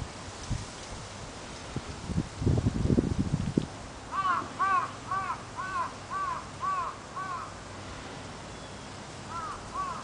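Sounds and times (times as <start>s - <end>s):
crow cawing: 4.1s - 7.6s, 9.3s - 10.0s.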